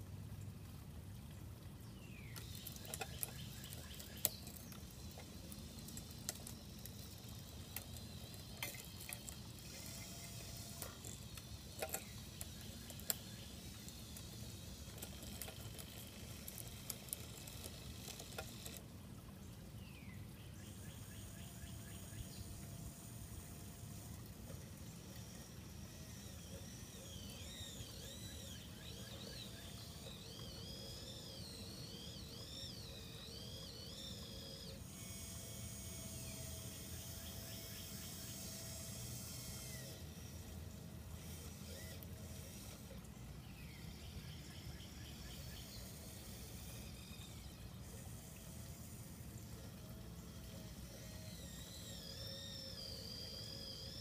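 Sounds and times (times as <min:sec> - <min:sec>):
small electric motors whirring: 0:02.3 - 0:18.9, 0:20.7 - 0:54.0
gears clicking and clanking: 0:02.4 - 0:18.8.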